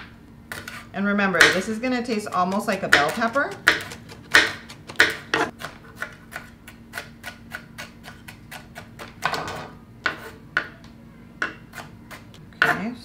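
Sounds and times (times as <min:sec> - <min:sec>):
knife chopping on wooden board: 0:01.4 - 0:10.7.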